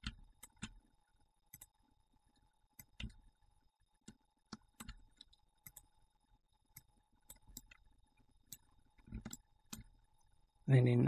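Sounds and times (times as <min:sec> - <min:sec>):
mouse and keyboard clicks: 0:08.5 - 0:09.9.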